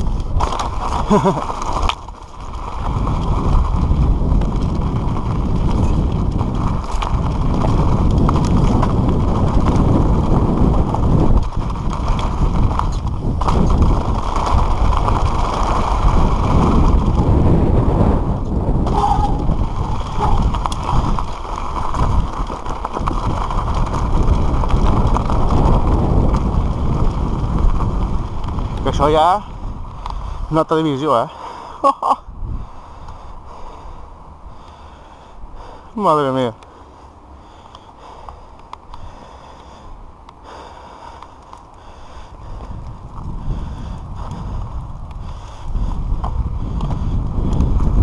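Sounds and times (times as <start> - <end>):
bike clicks and knocks: 0.0 - 17.5, 18.4 - 28.9, 37.5 - 39.7, 41.1 - 41.9, 46.0 - 48.0
tyres rolling on dirt and stones: 0.0 - 48.0
wind buffeting microphone: 0.0 - 48.0
rider breathing hard: 18.8 - 24.4, 29.5 - 30.6, 31.2 - 31.8, 32.4 - 36.0, 36.6 - 48.0.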